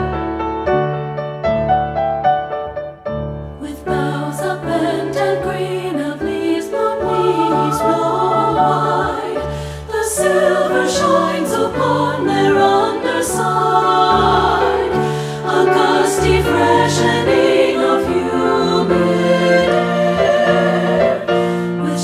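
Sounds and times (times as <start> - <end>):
piano accompaniment: 0.0 - 22.0
women's choir singing in harmony: 3.4 - 22.0.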